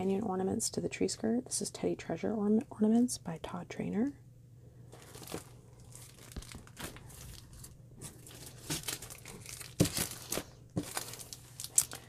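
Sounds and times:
plastic packaging crinkling: 4.9s - 12.0s.

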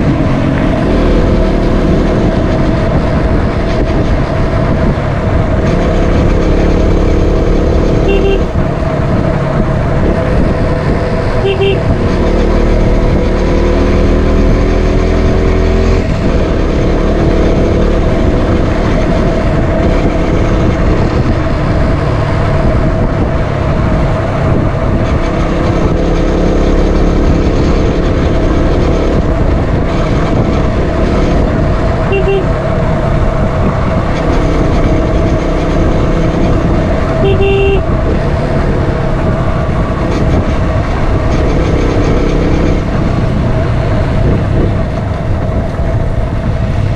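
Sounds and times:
motorcycle engine and road noise: 0.0s - 46.9s
motorcycle horn beeps: 8.0s - 8.6s, 11.4s - 11.9s, 32.1s - 32.6s, 37.2s - 37.9s.

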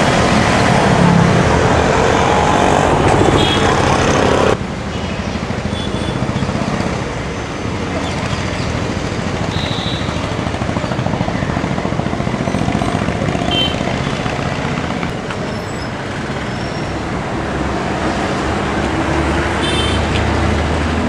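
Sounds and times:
road traffic noise: 0.0s - 21.0s
high horn toots: 3.3s - 4.1s, 19.6s - 20.1s.

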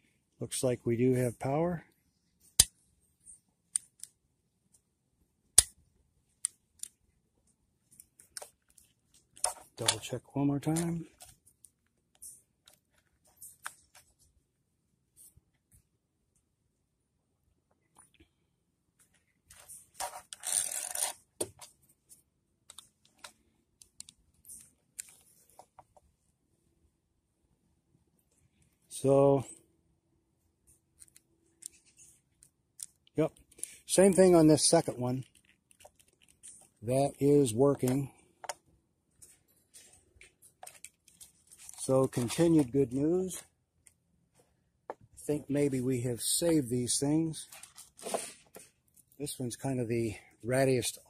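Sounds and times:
sharp plastic clicks: 3.7s - 4.2s
plastic rustle: 39.7s - 42.5s, 47.4s - 48.6s.

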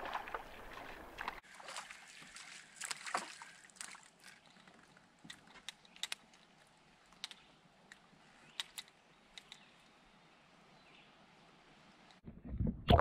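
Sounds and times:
fish splashing in water: 0.0s - 4.4s.

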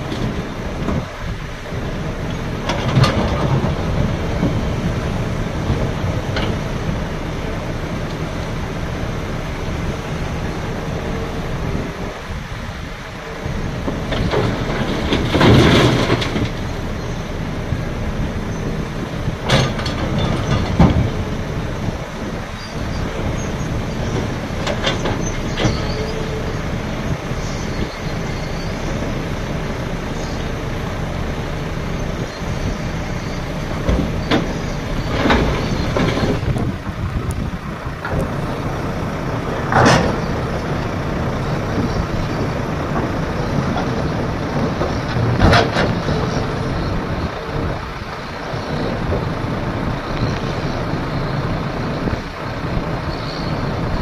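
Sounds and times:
diesel engines running: 0.0s - 54.0s.

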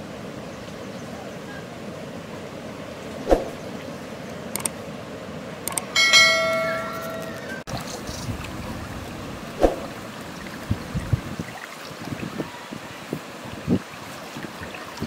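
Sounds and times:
short clicks: 4.6s - 4.8s, 5.7s - 5.9s
bright bell chime: 6.0s - 7.6s.

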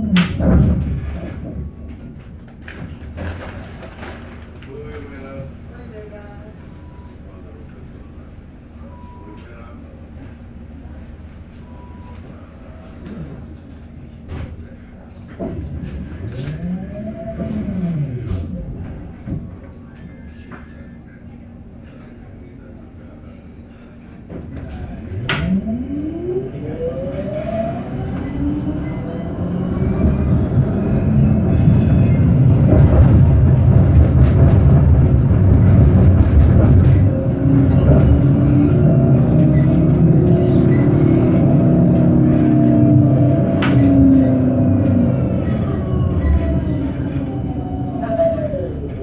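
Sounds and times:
wheels rumbling on rails: 0.0s - 9.2s, 10.0s - 20.8s, 23.8s - 49.0s
tram traction motor whine: 11.7s - 20.0s, 23.7s - 49.0s.

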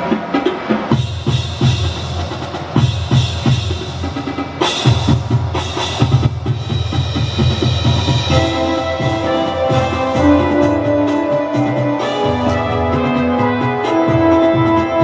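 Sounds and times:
bass and snare drums: 0.0s - 15.0s
held melody notes: 8.2s - 15.0s.

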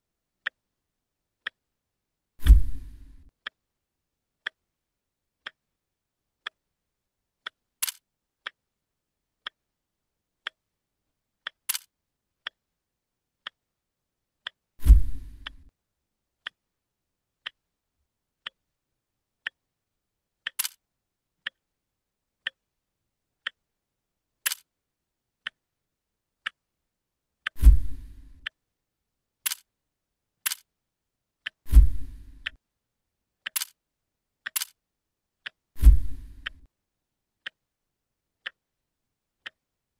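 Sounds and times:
clock ticking: 0.4s - 0.6s, 1.4s - 1.7s, 2.4s - 3.6s, 4.4s - 4.7s, 5.4s - 5.7s, 6.4s - 6.7s, 7.4s - 8.7s, 9.4s - 9.6s, 10.4s - 10.7s, 11.4s - 12.7s, 13.4s - 13.7s, 14.4s - 15.7s, 16.4s - 16.6s, 17.4s - 17.6s, 18.4s - 18.6s, 19.4s - 19.7s, 20.4s - 20.8s, 21.4s - 21.7s, 22.4s - 22.6s, 23.4s - 23.7s, 24.4s - 24.7s, 25.4s - 25.7s, 26.4s - 26.6s, 27.4s - 28.6s, 31.4s - 32.6s, 33.4s - 33.8s, 34.4s - 34.8s, 35.4s - 36.7s, 38.4s - 38.7s, 39.4s - 39.7s
sharp clicks: 7.4s - 8.6s, 11.4s - 12.6s, 20.4s - 20.8s, 24.4s - 24.7s, 29.4s - 29.7s, 30.4s - 30.7s, 33.4s - 33.8s, 34.4s - 34.8s.

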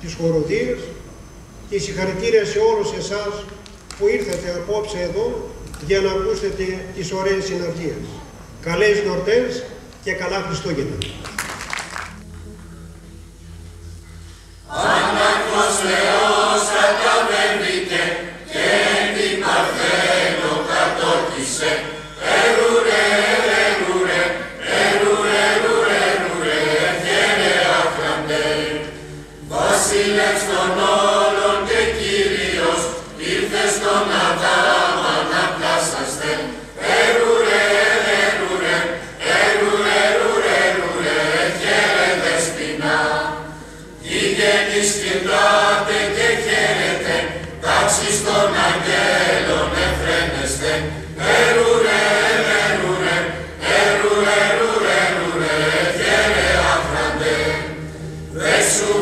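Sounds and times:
mixed choir singing: 14.6s - 59.0s.

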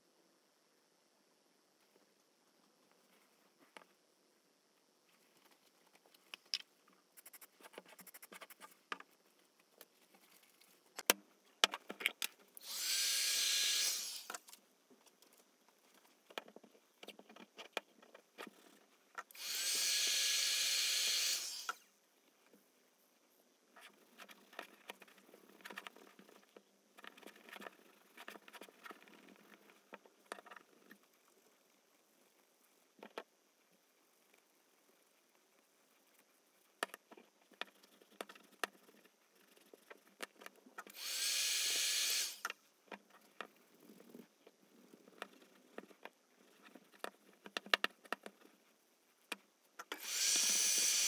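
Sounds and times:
small motorised tool spinning: 12.6s - 14.5s, 19.2s - 21.9s, 40.8s - 42.5s, 49.8s - 51.0s.

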